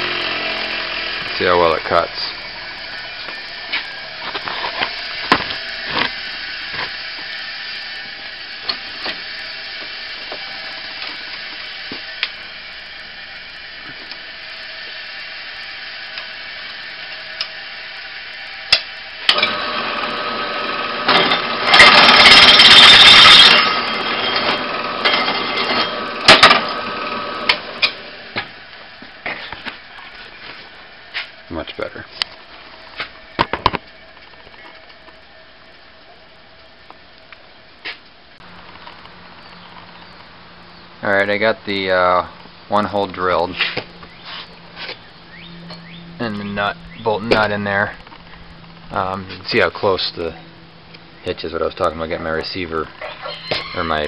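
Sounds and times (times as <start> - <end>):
drill press drilling steel tube: 0.0 - 28.6.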